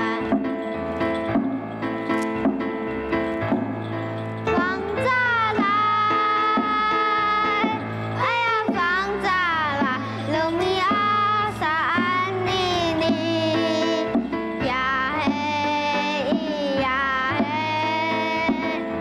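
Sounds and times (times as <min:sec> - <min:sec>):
child singing: 0:00.0 - 0:00.6, 0:04.5 - 0:19.0
instrumental backing music: 0:00.0 - 0:19.0.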